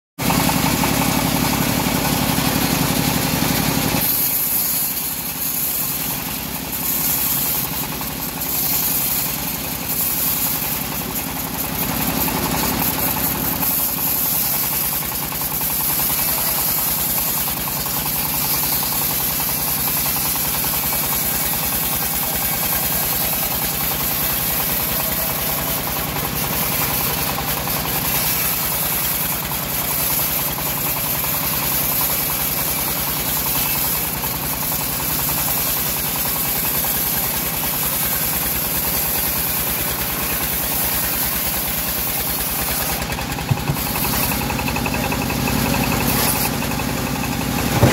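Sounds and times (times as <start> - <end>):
bandsaw mill engine running: 0.2 - 47.9
blade cutting log hiss: 2.6 - 47.9.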